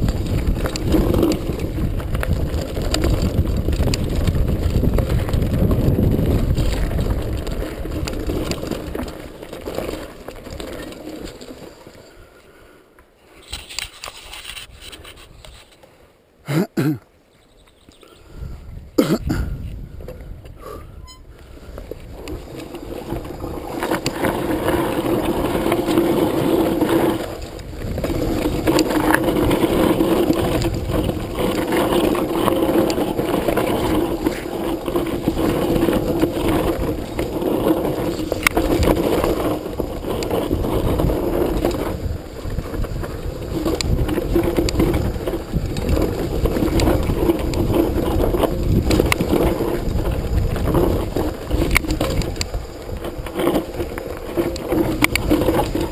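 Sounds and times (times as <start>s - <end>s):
bike knocking and rattling: 0.0s - 12.2s, 19.0s - 55.9s
tyres crunching over dirt and stones: 0.0s - 12.2s, 21.7s - 55.9s.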